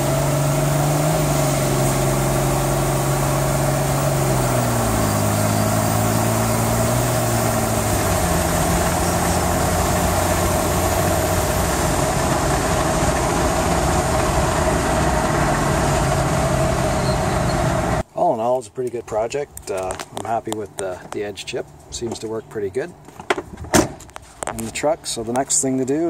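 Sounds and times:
diesel engine running: 0:00.0 - 0:18.0.

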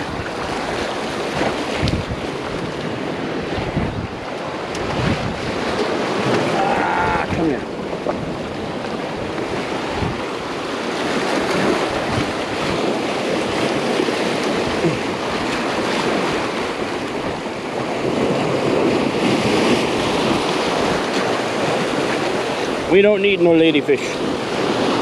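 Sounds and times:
surf breaking against rocks: 0:00.0 - 0:25.0.

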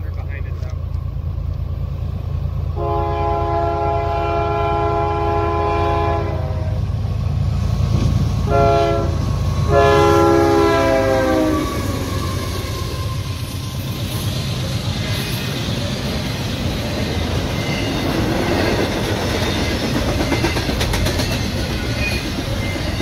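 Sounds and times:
diesel engines rumbling: 0:00.0 - 0:23.0
locomotive air horn blasts: 0:02.8 - 0:06.9, 0:08.4 - 0:12.6.

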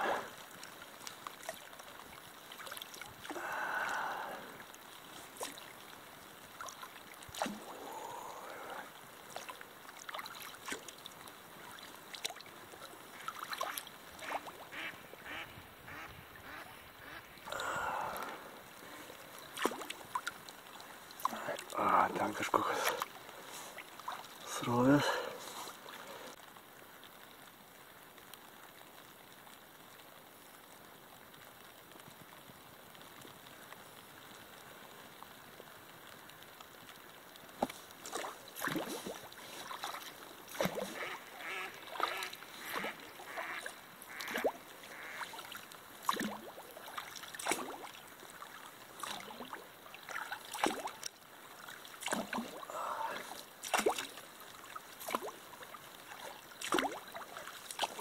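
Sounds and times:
paddle splashing in water: 0:00.0 - 0:15.4, 0:16.4 - 0:26.4, 0:37.5 - 0:58.0
river water hiss: 0:00.0 - 0:58.0.

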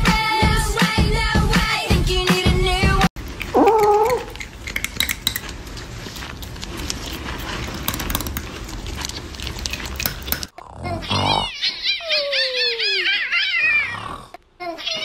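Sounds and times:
cat chewing noisily: 0:03.2 - 0:10.6.

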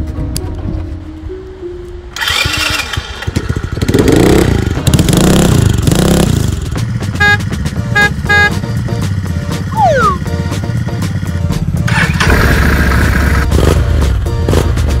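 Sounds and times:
mini motorbike engine revving: 0:02.2 - 0:06.7, 0:11.9 - 0:13.8
short horn beeps: 0:07.2 - 0:08.6.

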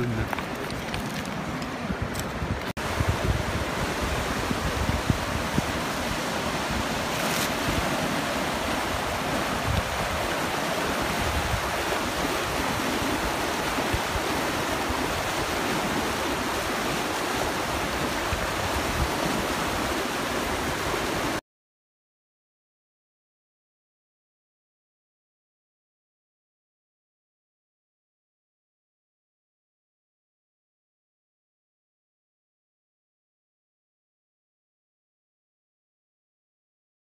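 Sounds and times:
river rushing over rapids: 0:00.0 - 0:21.4.

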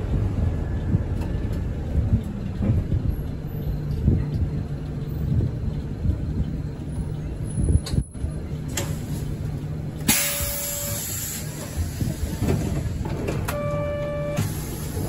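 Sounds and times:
bus engine low rumble: 0:00.0 - 0:15.0
short steady beep: 0:13.5 - 0:14.5
long electronic tone: 0:13.6 - 0:14.4.

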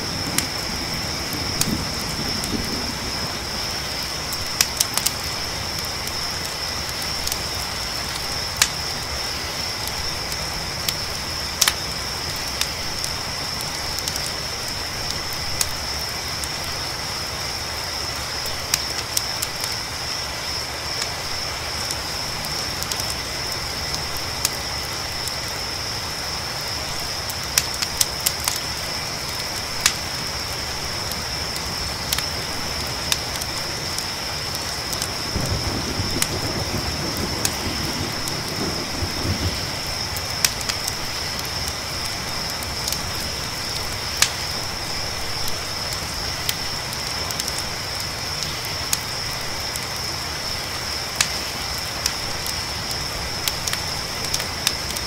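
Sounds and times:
distant thunder rumble: 0:00.0 - 0:05.6, 0:35.1 - 0:42.4
campfire crackling and popping: 0:00.0 - 0:55.0
crickets chirping: 0:00.0 - 0:55.0
rain hissing: 0:00.0 - 0:55.0.

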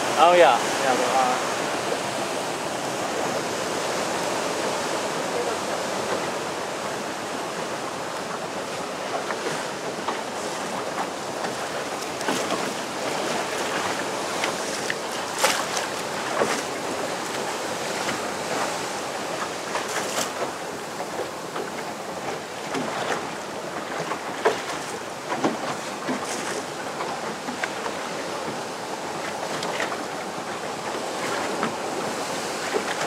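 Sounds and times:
sharp water splashes: 0:00.0 - 0:33.0
surf breaking against cliffs: 0:00.0 - 0:33.0.

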